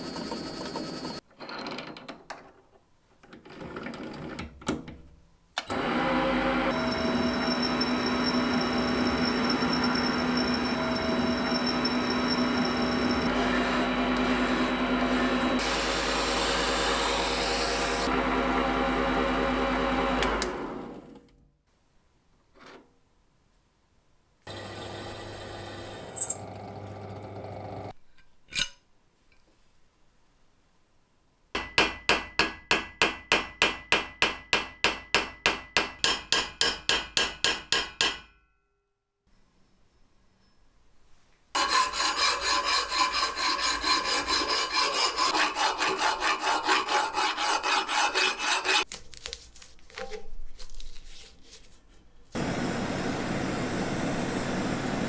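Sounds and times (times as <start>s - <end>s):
metal lathe running down: 5.7s - 16.9s, 24.5s - 27.9s
high-pitched cutter squeal: 6.7s - 15.5s, 24.5s - 26.4s
metal lathe running: 24.5s - 27.9s.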